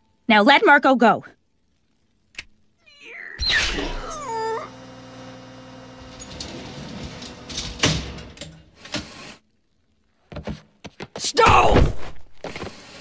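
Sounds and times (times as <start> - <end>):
steady hum of held tones: 0.0 - 6.5.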